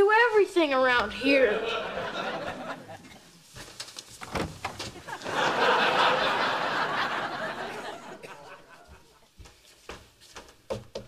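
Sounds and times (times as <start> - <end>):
audience laughter: 1.2 - 3.2, 5.0 - 9.2
bedding rustling: 1.7 - 6.1.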